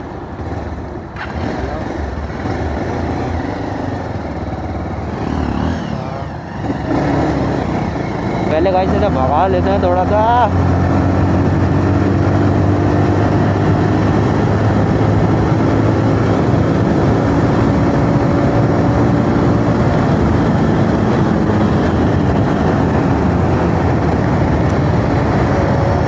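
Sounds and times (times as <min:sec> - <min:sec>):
motorcycle engine at speed: 0:00.0 - 0:26.0
wind rush on microphone: 0:06.6 - 0:26.0.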